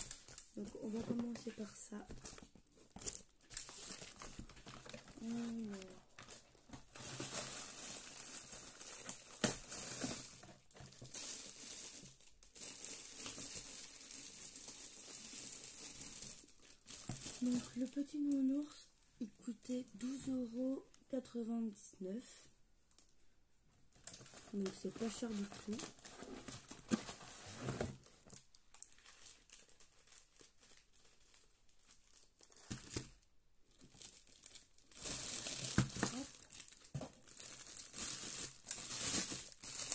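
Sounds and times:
plastic bag crinkling: 0.0s - 18.8s, 24.0s - 39.9s
sharp loud plastic crackle: 33.9s - 39.9s.

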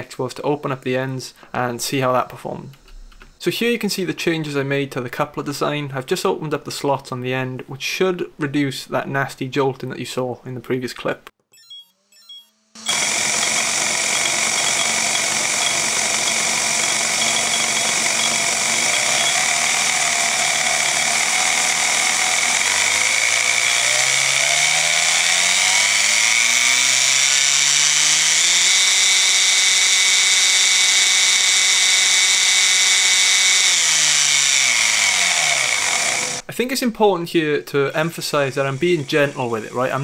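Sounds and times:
electric motor and gears whirring: 11.6s - 36.5s, 38.2s - 40.0s.

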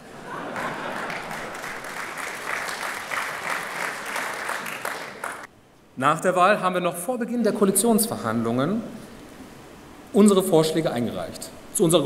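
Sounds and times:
large audience applauding: 0.0s - 5.5s.

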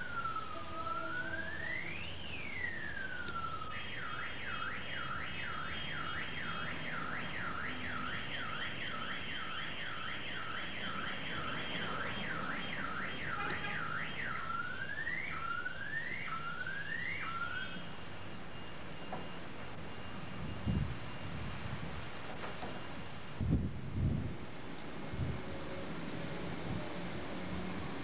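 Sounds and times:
electronic siren wailing and yelping: 0.0s - 18.0s.

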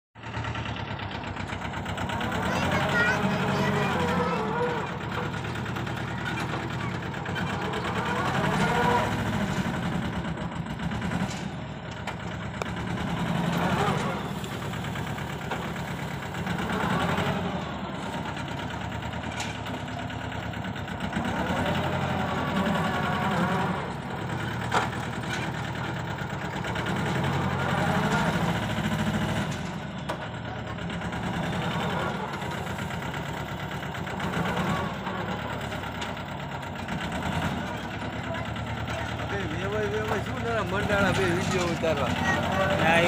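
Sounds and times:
tractor diesel engine under load: 0.2s - 43.0s.

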